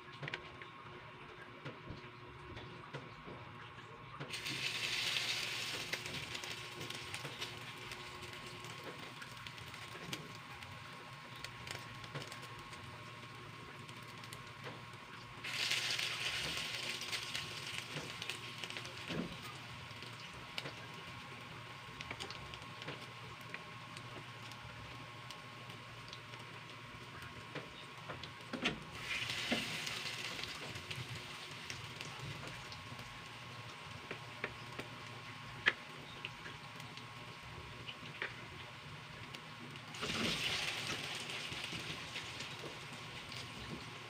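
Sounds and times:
batter sizzling in hot oil: 4.3s - 44.0s.

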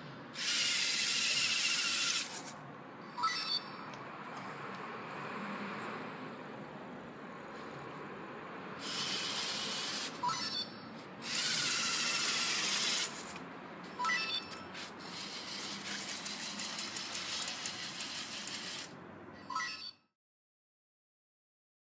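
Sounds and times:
robot motors whirring: 0.4s - 2.5s, 8.8s - 10.2s, 11.2s - 13.3s, 15.0s - 18.9s
short beeps: 3.0s - 3.8s, 14.0s - 14.7s
plastic tracks clicking on tiles: 15.2s - 18.9s.

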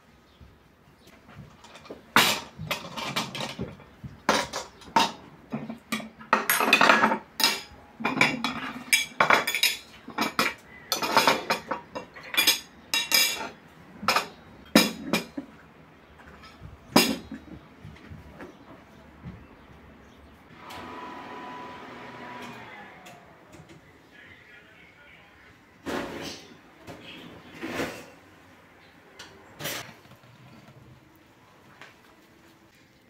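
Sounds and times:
tableware clattering on wooden table: 1.5s - 15.6s, 16.2s - 17.6s.

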